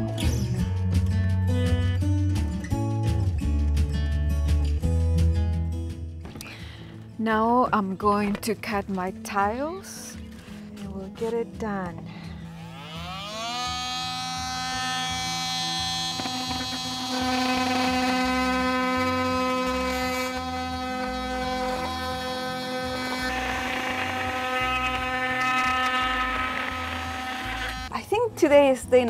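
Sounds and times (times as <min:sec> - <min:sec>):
oscillating multi-tool cutting: 0:12.2 - 0:27.9.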